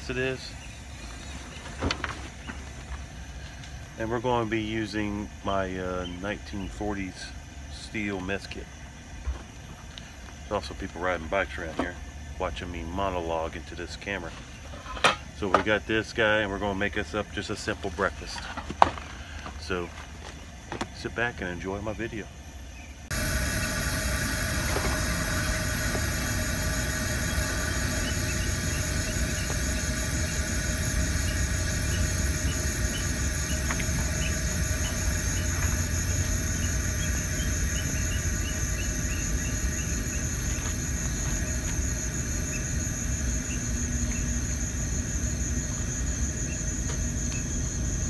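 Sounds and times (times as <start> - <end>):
insects chorus: 0.0 - 48.0
faint chirps: 20.9 - 48.0.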